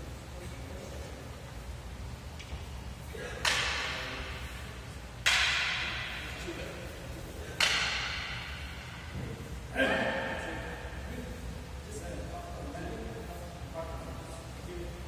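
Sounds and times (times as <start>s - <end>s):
wooden swords clacking: 3.4s - 4.4s, 5.2s - 6.5s, 7.5s - 9.2s.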